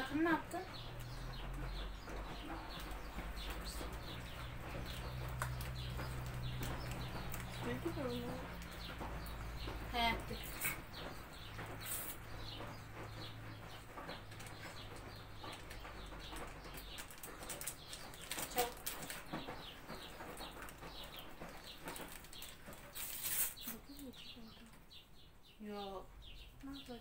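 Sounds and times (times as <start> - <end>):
paper sachet tearing: 22.0 - 24.0.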